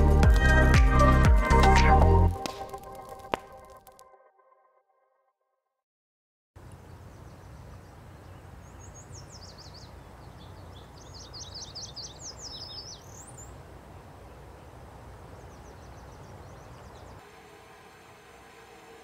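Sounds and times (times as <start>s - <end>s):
songbird singing: 6.6s - 17.2s.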